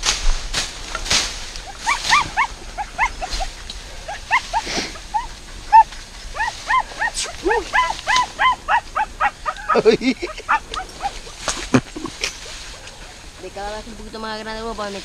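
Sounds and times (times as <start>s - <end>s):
rustling in dry brush: 0.0s - 15.0s
dog yelping: 1.6s - 13.4s.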